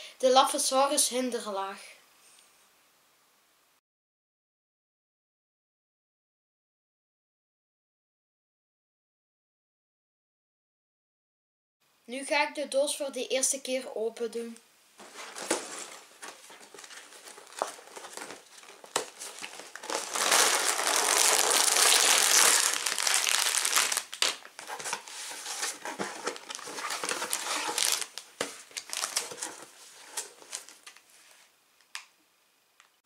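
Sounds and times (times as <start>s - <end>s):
cardboard and plastic pieces tapping: 15.0s - 19.7s
plastic bag crinkling: 15.0s - 31.1s.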